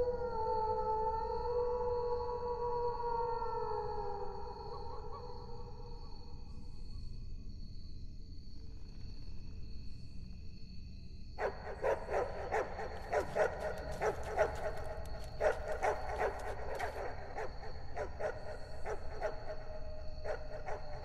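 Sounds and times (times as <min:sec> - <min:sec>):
dog barking and yelping: 0:11.4 - 0:19.6, 0:20.2 - 0:21.0.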